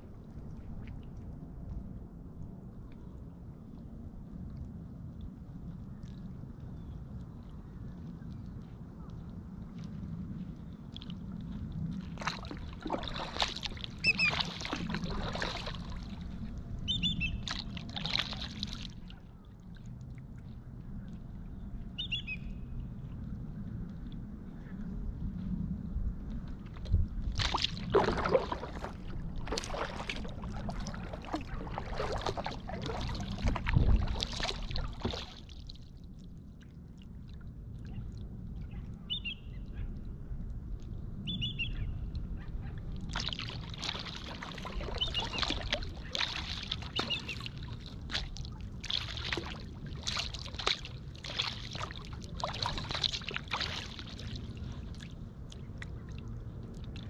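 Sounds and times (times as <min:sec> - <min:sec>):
kayak paddle splashing water: 0:11.9 - 0:19.3, 0:27.2 - 0:35.9, 0:43.0 - 0:56.1.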